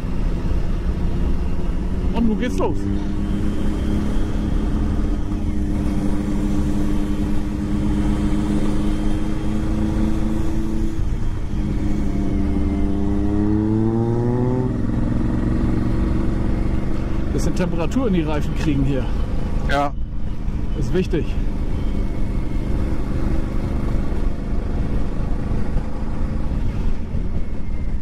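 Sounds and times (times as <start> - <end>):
motorcycle engine running: 0.0 - 27.9.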